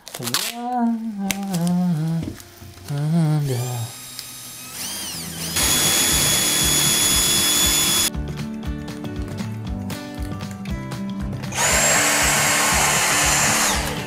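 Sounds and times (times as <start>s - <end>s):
cordless drill boring tile: 3.9s - 8.1s, 11.5s - 14.0s
music with a beat: 6.7s - 14.0s.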